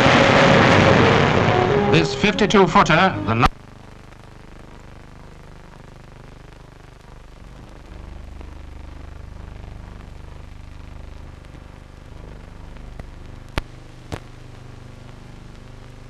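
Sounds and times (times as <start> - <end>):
film soundtrack hum and hiss: 0.0 - 16.0
sharp pops: 12.7 - 15.6.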